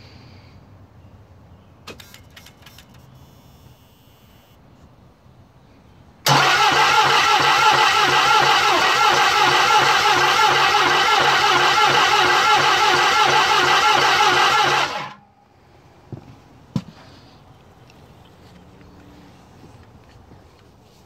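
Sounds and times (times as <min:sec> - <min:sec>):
diesel engine cranking: 0:06.2 - 0:15.2.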